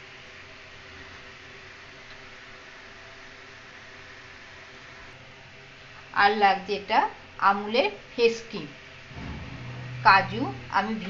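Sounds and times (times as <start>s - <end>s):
faint low hum: 9.1s - 11.0s.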